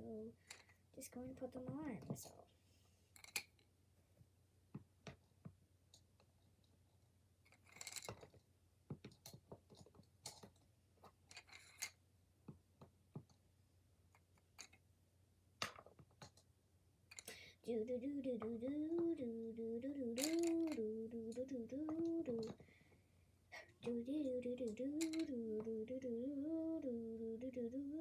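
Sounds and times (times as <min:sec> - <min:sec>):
pencils clicking in a box: 0:20.0 - 0:22.6, 0:24.6 - 0:25.4.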